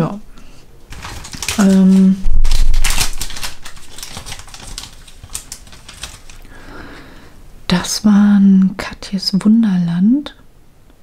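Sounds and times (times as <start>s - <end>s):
plastic bag crinkling: 0.9s - 6.8s.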